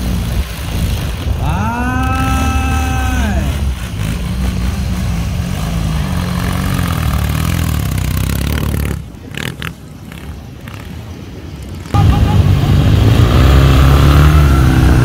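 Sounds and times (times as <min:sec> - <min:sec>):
motorcycle engine revving: 0:00.0 - 0:15.0
brief high tones: 0:12.0 - 0:12.8.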